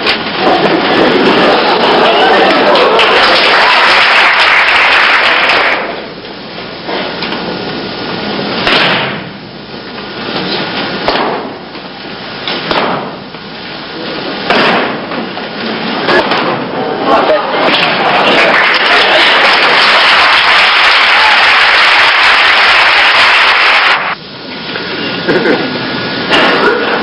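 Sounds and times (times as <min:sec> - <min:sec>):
loud rushing noise: 0:15.8 - 0:24.2.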